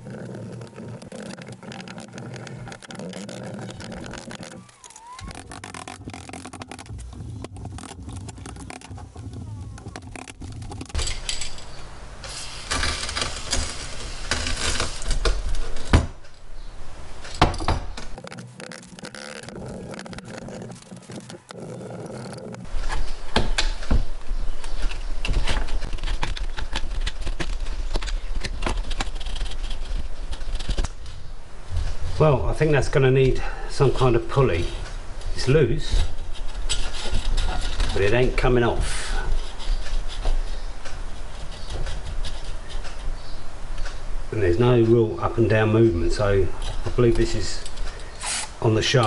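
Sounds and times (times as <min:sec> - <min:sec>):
tools and metal parts clinking: 0:10.1 - 0:11.8.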